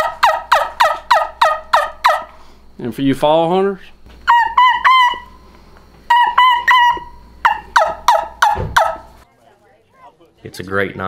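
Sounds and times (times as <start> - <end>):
turkey call whistled notes: 0.0 - 2.4, 4.2 - 5.5, 6.1 - 9.2
turkey call yelps: 0.0 - 2.4, 4.2 - 5.5, 6.1 - 9.2.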